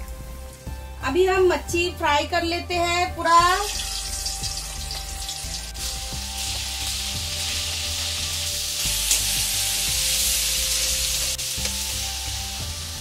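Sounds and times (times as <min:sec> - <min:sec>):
prawns sizzling in hot oil: 0:03.6 - 0:13.0.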